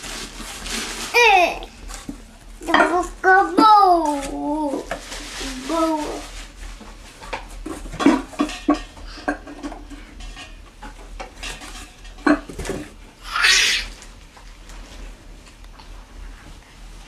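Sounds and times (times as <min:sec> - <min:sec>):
rustling: 0:00.0 - 0:02.2, 0:03.0 - 0:07.8.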